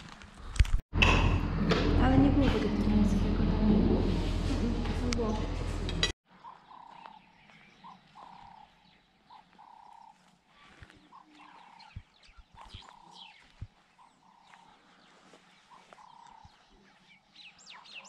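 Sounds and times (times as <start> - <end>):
bird chirps: 6.3 - 18.0.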